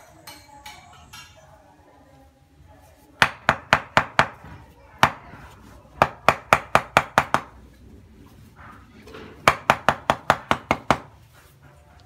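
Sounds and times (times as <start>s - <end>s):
sharp wooden knocks: 6.0s - 7.5s, 9.4s - 11.1s.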